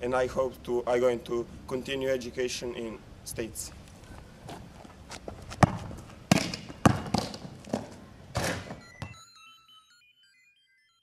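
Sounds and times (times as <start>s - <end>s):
basketball thuds on hard court: 5.6s - 9.2s.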